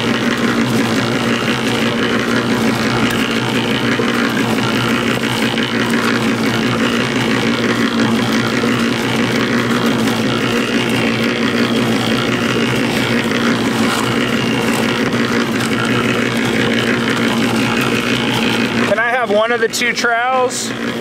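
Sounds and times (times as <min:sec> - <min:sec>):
cement mixer motor hum: 0:00.0 - 0:21.0.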